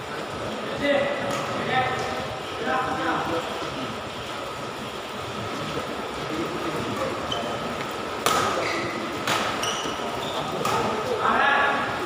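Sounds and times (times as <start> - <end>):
steady background hiss: 0.0 - 12.0
shoes squeaking on court floor: 7.0 - 8.0, 8.6 - 11.1
racket hitting shuttlecock: 8.2 - 9.7, 10.6 - 11.0.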